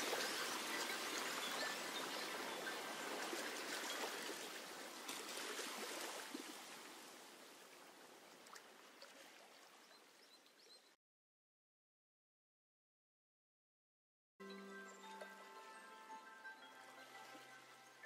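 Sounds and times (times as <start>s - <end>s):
water trickling and splashing: 0.0s - 10.8s, 14.5s - 18.0s.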